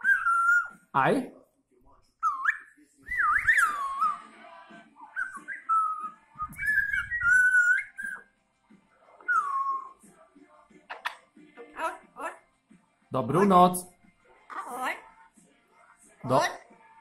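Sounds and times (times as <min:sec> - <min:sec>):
parrot whistled calls: 0:00.0 - 0:00.8, 0:02.2 - 0:04.2, 0:05.2 - 0:08.3, 0:09.2 - 0:10.0.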